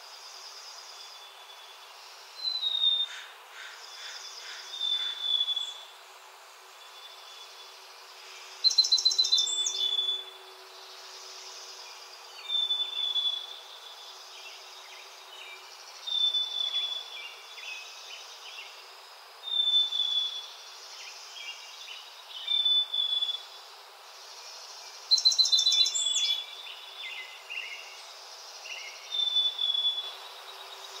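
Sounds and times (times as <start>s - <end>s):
insect buzz: 0.0s - 31.0s.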